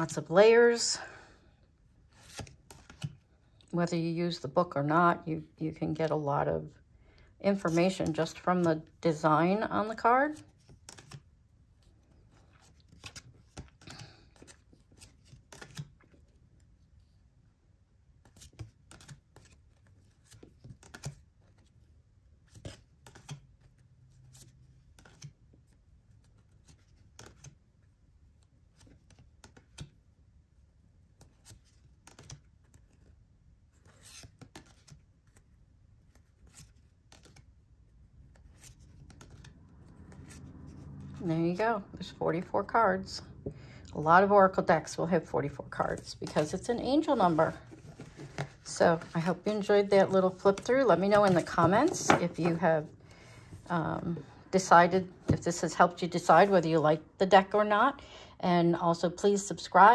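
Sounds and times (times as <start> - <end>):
cards being flipped: 2.1 - 3.2, 10.3 - 11.3, 12.1 - 16.3, 18.2 - 21.7, 22.5 - 25.4, 26.1 - 27.6, 28.7 - 30.0, 31.1 - 33.1, 33.7 - 37.6, 38.2 - 41.1, 45.9 - 53.7.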